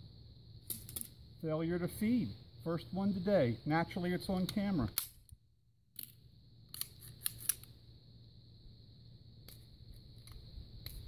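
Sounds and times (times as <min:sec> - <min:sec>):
metallic pistol clicks: 0:04.4 - 0:07.7.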